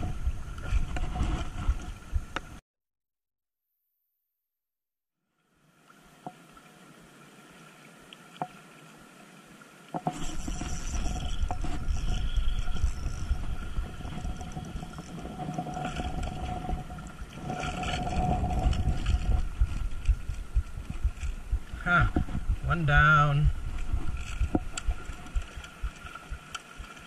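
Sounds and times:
wind buffeting microphone: 0:00.0 - 0:02.4, 0:10.4 - 0:26.5
faint whine: 0:10.1 - 0:27.0.

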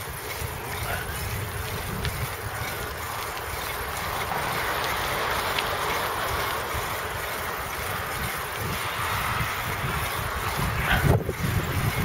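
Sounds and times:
wind rumble on microphone: 0:00.0 - 0:03.4, 0:04.0 - 0:12.0
steady outdoor hiss: 0:00.0 - 0:12.0.

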